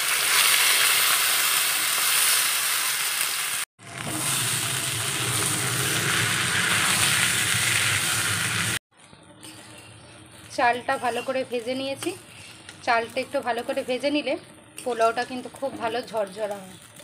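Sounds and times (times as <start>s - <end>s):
rice sizzling in hot oil: 0.0s - 17.0s
metal spatula turning food: 9.0s - 17.0s.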